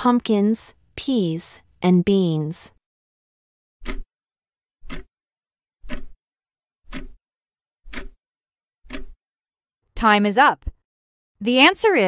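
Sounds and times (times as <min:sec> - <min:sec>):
clock-like timer ticks: 0:03.8 - 0:04.1, 0:04.8 - 0:05.1, 0:05.8 - 0:06.2, 0:06.9 - 0:07.2, 0:07.8 - 0:08.2, 0:08.8 - 0:09.2.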